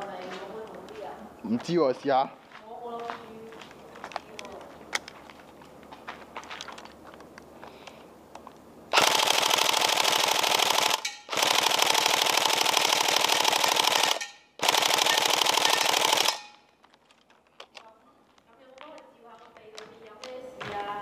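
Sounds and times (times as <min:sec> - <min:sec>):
airsoft gun firing full auto: 0:08.9 - 0:16.6.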